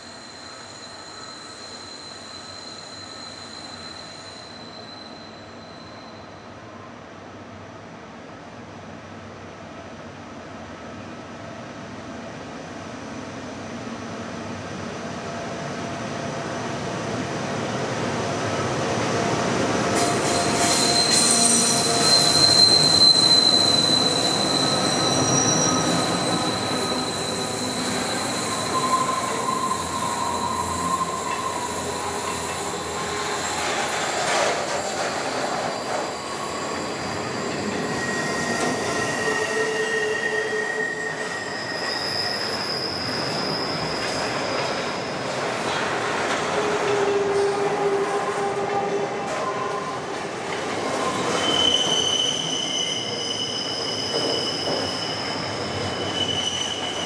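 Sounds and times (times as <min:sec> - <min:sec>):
wheel squeals: 0:00.1 - 0:06.2, 0:20.0 - 0:45.7, 0:50.7 - 0:57.0
train wagons rumbling: 0:19.8 - 0:39.2.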